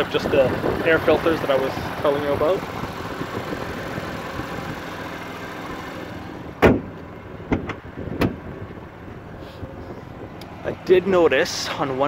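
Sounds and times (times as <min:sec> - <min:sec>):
car hood slamming: 0:06.6 - 0:08.5.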